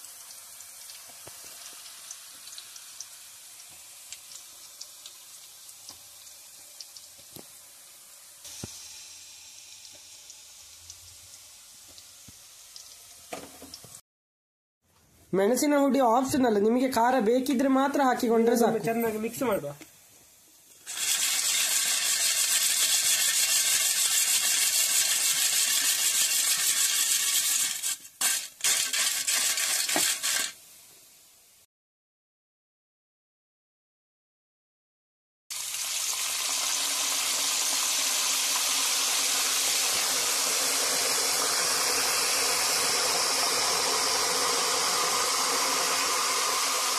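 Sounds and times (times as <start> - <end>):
slices deep-frying in oil: 0.0 - 14.0, 20.6 - 31.6, 35.5 - 46.9
chips rattling in plastic colander: 20.9 - 30.6.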